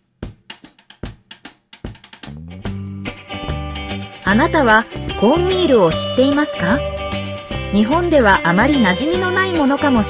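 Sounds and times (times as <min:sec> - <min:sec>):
held pitched notes: 0:02.4 - 0:10.0.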